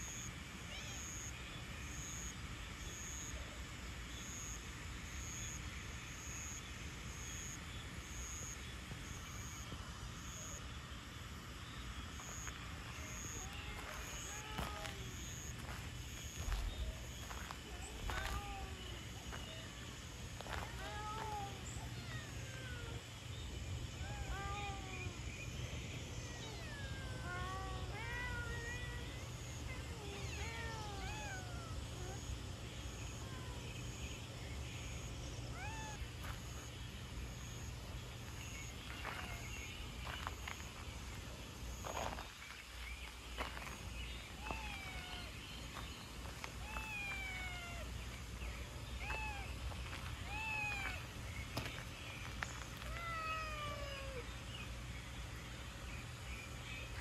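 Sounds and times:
low rumble and hiss: 0:00.0 - 0:57.0
cats meowing: 0:13.1 - 0:15.7, 0:17.4 - 0:19.4, 0:20.4 - 0:23.0, 0:23.9 - 0:25.2, 0:26.2 - 0:32.2, 0:35.6 - 0:36.4, 0:44.4 - 0:45.4, 0:46.4 - 0:48.0, 0:49.0 - 0:51.7, 0:52.7 - 0:54.3.

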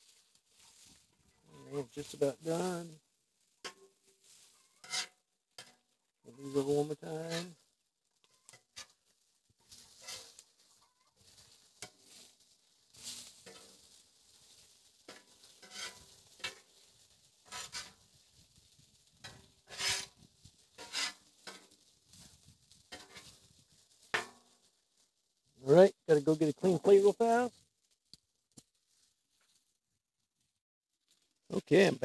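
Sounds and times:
metal spatula scraping griddle: 0:01.6 - 0:02.7, 0:03.6 - 0:07.6, 0:08.2 - 0:18.1, 0:19.2 - 0:24.5
food sizzling: 0:03.4 - 0:24.6.

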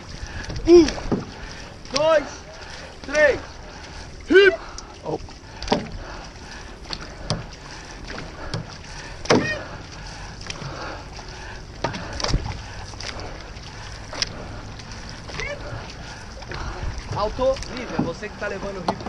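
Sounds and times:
canoe paddles splashing in water: 0:00.0 - 0:19.0
water noise: 0:00.0 - 0:19.0
wind: 0:00.0 - 0:19.0.

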